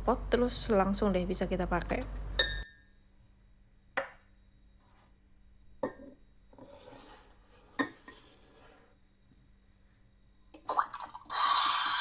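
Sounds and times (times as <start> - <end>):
kitchenware clinking: 2.3 - 2.8.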